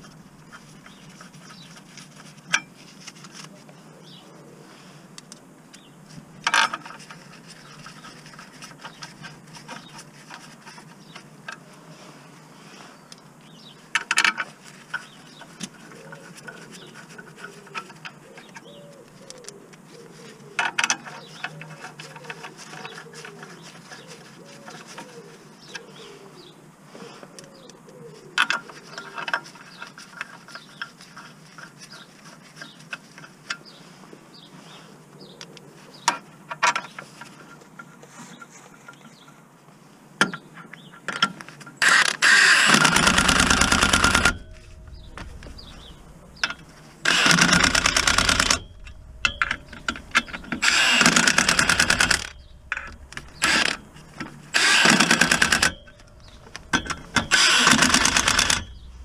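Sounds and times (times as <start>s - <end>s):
clicks of bolts being handled: 20.6s - 25.9s, 28.4s - 33.7s, 40.2s - 58.8s
impact wrench bursts: 41.8s - 44.6s, 45.5s - 56.0s, 56.7s - 58.8s.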